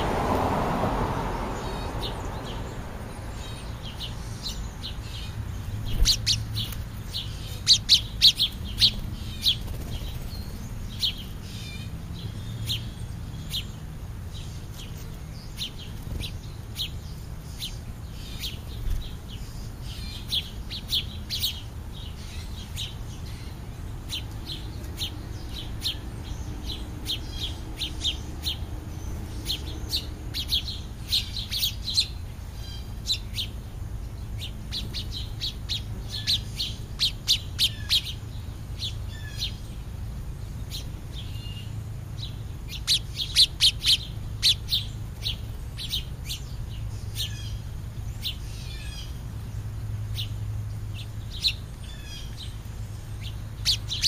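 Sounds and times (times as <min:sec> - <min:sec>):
sparrows chirping: 0:00.0 - 0:54.0.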